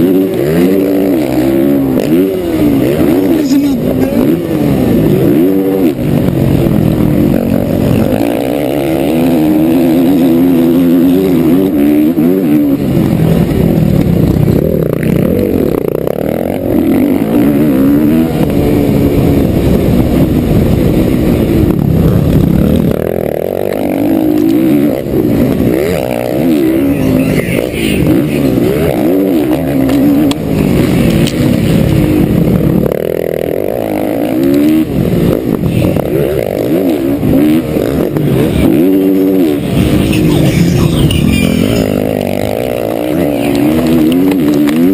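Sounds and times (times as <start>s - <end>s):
motocross bike engine revving: 0.0s - 44.9s.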